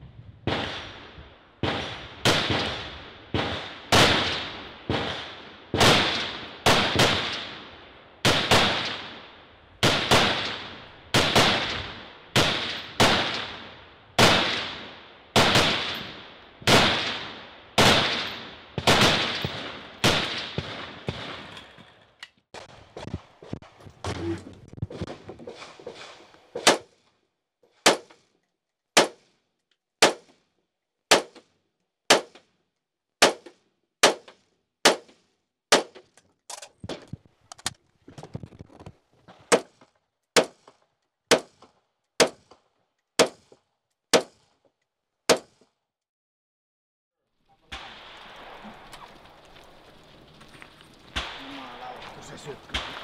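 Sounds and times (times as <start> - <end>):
rifle shots with echo: 0.5 - 21.6, 31.1 - 31.4, 33.2 - 36.0, 47.7 - 49.8, 51.1 - 53.0
faint scattered gunshot pops: 51.1 - 53.0.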